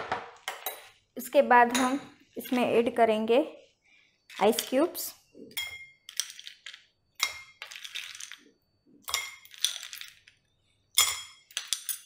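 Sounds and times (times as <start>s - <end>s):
ice cubes clinking in glass: 6.0s - 8.5s, 9.1s - 10.4s, 11.0s - 12.0s.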